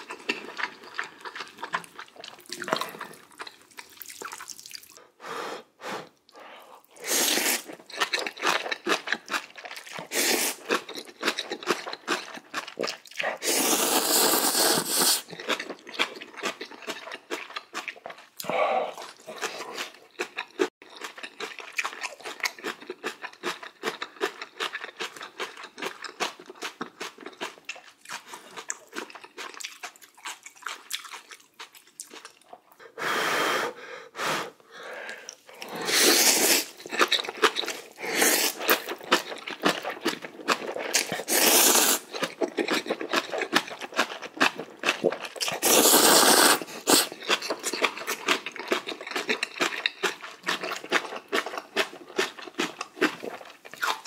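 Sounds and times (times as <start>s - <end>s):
wet chewing: 0.0s - 5.0s, 6.2s - 32.8s, 35.1s - 54.0s
slurping noodles: 5.8s - 10.9s, 11.6s - 15.8s, 33.0s - 43.3s, 44.4s - 48.3s.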